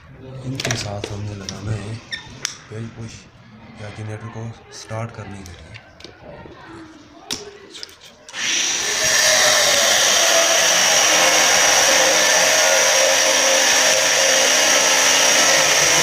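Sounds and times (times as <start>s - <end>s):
loud steady whirring: 8.4s - 16.0s.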